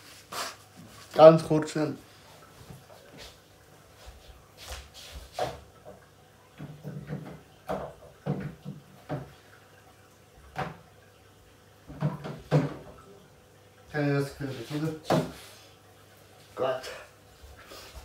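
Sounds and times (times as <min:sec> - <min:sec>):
footsteps: 0:02.6 - 0:05.6
knocks and bumps at a cabinet: 0:06.6 - 0:09.3, 0:11.9 - 0:12.9.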